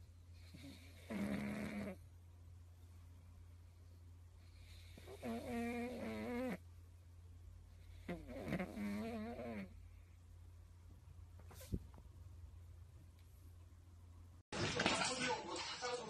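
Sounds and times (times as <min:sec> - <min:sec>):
low steady hum: 0:00.0 - 0:01.0, 0:01.8 - 0:16.0
dog snoring: 0:00.4 - 0:02.0, 0:04.5 - 0:06.6, 0:07.8 - 0:09.8.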